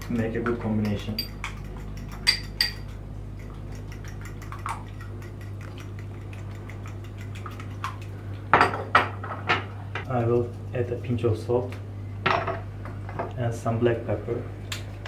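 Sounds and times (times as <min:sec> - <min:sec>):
fork whisking eggs in a bowl: 0:00.0 - 0:08.5, 0:10.1 - 0:11.6.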